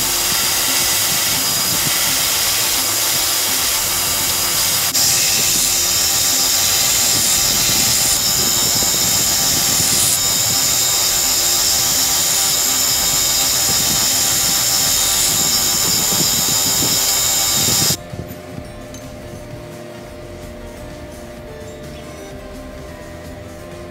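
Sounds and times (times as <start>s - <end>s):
belt grinder grinding steel: 0.0s - 18.0s.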